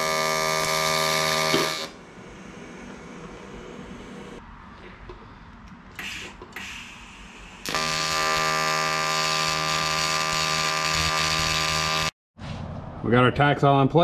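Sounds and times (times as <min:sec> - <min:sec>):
welding arc buzzing: 0:00.0 - 0:02.0, 0:06.0 - 0:12.2.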